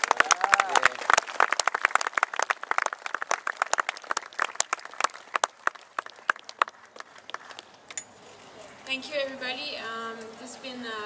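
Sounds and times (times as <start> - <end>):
audience clapping: 0.0 - 7.7.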